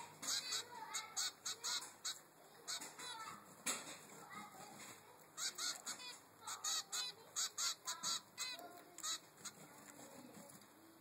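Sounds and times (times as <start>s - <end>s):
finch chick high begging calls: 0.0s - 3.3s, 5.4s - 9.6s.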